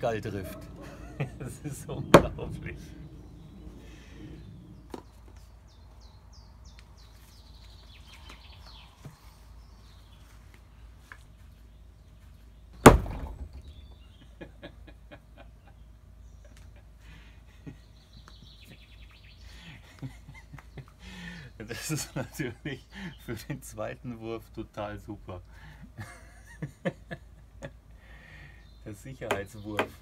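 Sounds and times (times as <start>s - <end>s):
birds chirping: 0.0s - 30.0s
axe thunking into wood: 2.1s - 2.5s, 12.8s - 13.7s.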